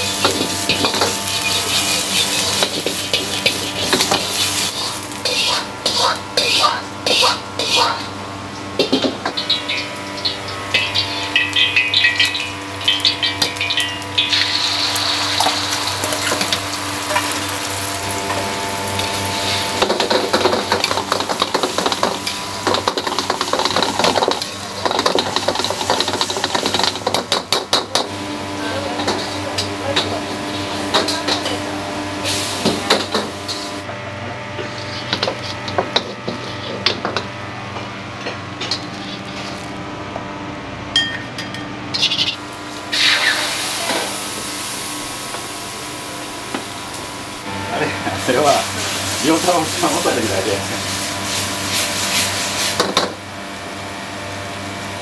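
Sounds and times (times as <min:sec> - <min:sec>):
metal utensils clanking on pans: 0:00.0 - 0:08.1, 0:08.8 - 0:14.6, 0:18.2 - 0:28.1, 0:28.7 - 0:31.6
food sizzling: 0:00.0 - 0:33.9, 0:42.0 - 0:55.0
steady hum: 0:00.0 - 0:55.0.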